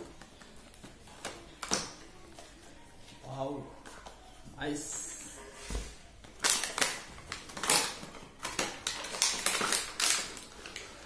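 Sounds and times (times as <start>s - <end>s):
packaging being torn open: 6.4s - 10.9s.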